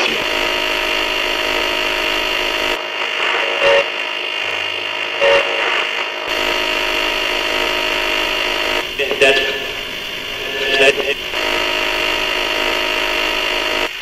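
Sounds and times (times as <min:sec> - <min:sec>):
buzzy radio static: 0:00.0 - 0:14.0
brief radio blips: 0:05.0 - 0:14.0.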